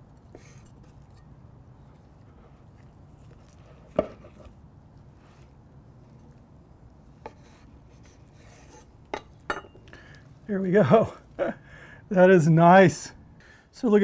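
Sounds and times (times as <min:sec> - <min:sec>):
knife scraping and slicing meat: 0:07.1 - 0:09.8.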